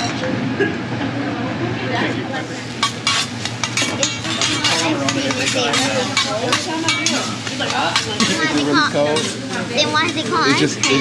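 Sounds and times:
voices in background: 0:00.8 - 0:11.0
food sizzling: 0:02.3 - 0:11.0
metal spatula scraping on griddle: 0:02.7 - 0:11.0.

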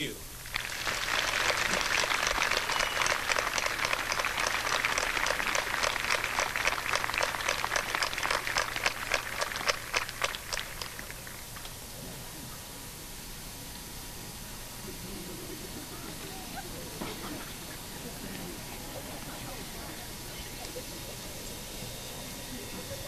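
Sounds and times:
audience applauding: 0:00.4 - 0:11.8.

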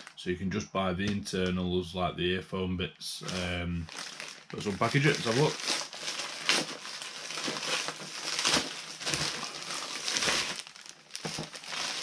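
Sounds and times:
plastic packaging crinkling: 0:00.0 - 0:00.2, 0:03.2 - 0:12.0.

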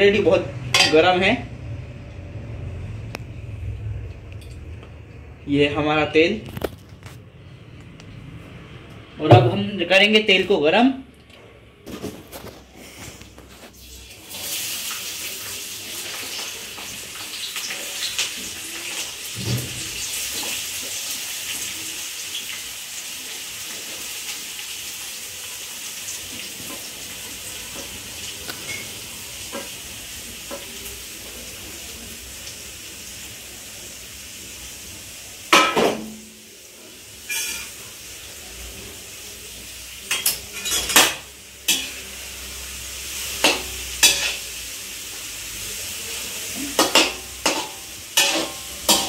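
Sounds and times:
hot oil sizzling: 0:11.9 - 0:49.0.

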